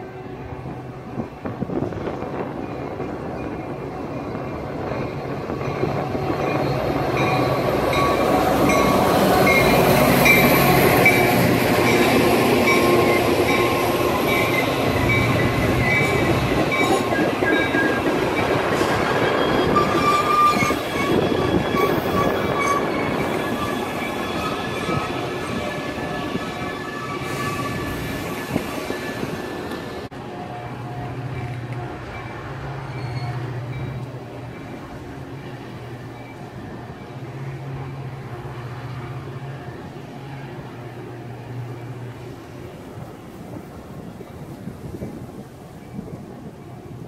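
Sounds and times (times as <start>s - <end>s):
diesel locomotive approaching: 0.0s - 47.0s
train wheels rumbling on rail: 0.0s - 47.0s
high-pitched metallic squeals: 4.8s - 30.0s, 32.1s - 34.6s.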